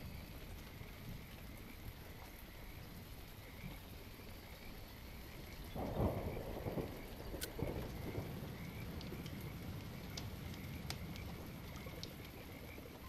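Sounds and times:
low rumble of thunder: 0.0 - 13.0
steady rain: 0.0 - 13.0.

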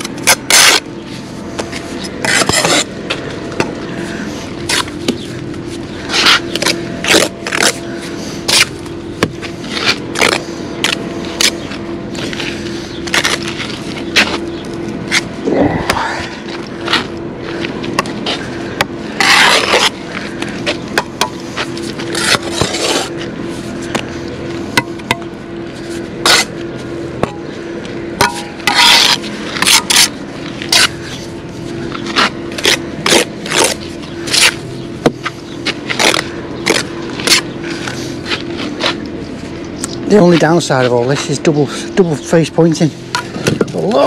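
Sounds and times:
steady low hum: 0.0 - 44.0
trowel scraping mortar: 0.2 - 0.9, 1.6 - 2.9, 6.0 - 7.8, 19.1 - 20.0, 21.5 - 23.1, 25.8 - 26.5, 28.3 - 31.2, 32.0 - 34.6.

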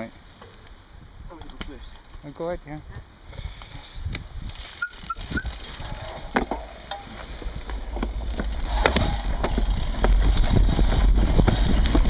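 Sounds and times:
wind rumble on microphone: 2.8 - 12.0
bike chain and frame rattling: 4.4 - 12.0
bike squeaks: 4.5 - 6.3.

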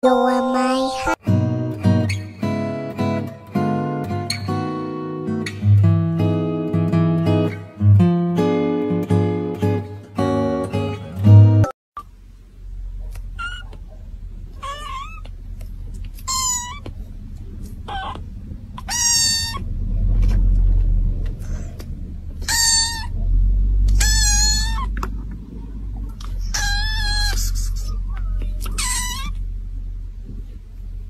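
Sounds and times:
low rumble: 12.2 - 31.0
kitten meowing: 13.4 - 13.8, 14.6 - 15.3, 16.2 - 16.9, 17.6 - 19.7, 22.4 - 23.2, 23.9 - 25.0, 26.3 - 29.4.

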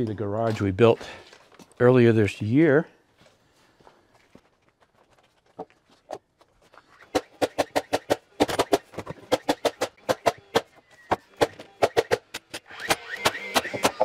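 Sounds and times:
nail guns firing: 7.0 - 14.0.

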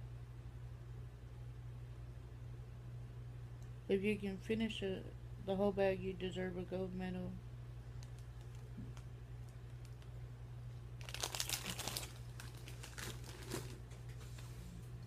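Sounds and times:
steady low hum: 0.0 - 15.0
chip crunching: 11.0 - 13.9.

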